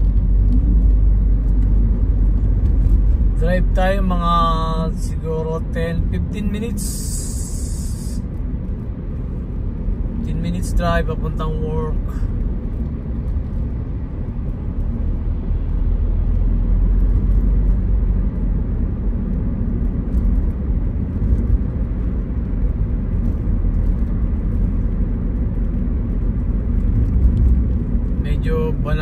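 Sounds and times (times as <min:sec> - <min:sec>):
road and engine rumble in car: 0:00.0 - 0:29.0.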